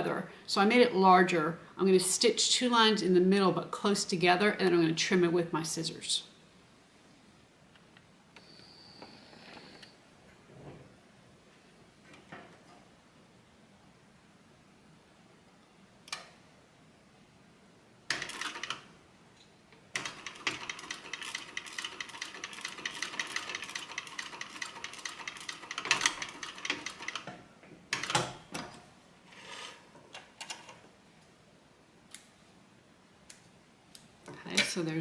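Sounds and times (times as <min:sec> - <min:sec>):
sewing machine stitching leather: 0:18.1 - 0:18.9, 0:20.0 - 0:27.3.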